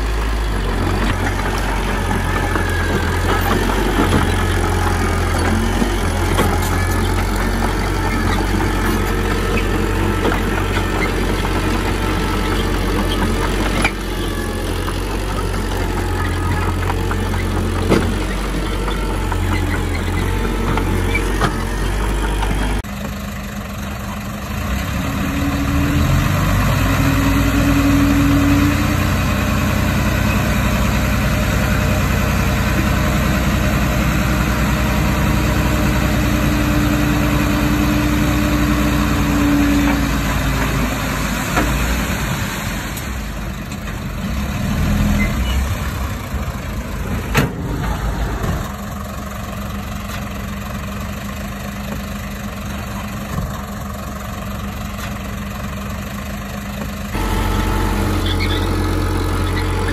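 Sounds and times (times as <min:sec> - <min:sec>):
heavy machinery diesel engine: 0:00.0 - 0:59.9.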